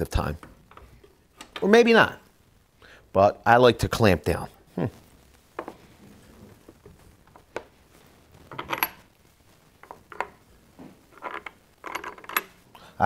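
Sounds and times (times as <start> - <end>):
screws and screwdriver clinking: 8.5 - 9.0, 11.1 - 12.6.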